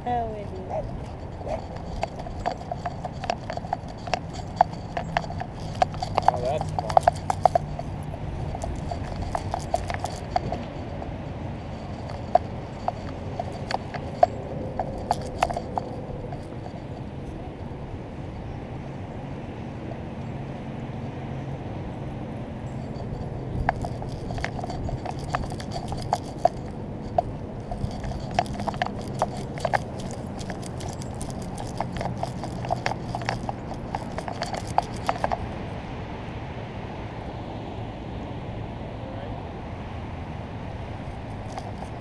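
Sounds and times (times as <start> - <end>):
steady low rumble: 0.0 - 19.2.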